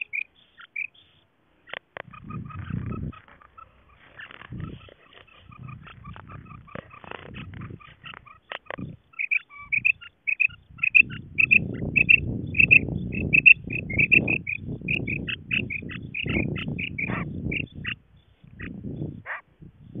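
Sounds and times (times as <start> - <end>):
quail calling: 0.0 - 19.5
low rumbling noise: 2.1 - 9.0.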